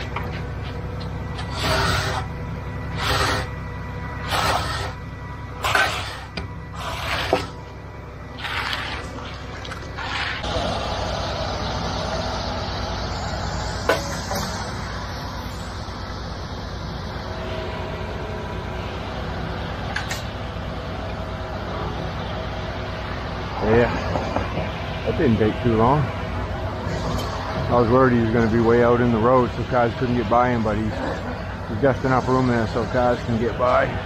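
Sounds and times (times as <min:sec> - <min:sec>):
truck diesel engine running: 0:00.0 - 0:34.0
hand edger scraping concrete: 0:05.6 - 0:07.6.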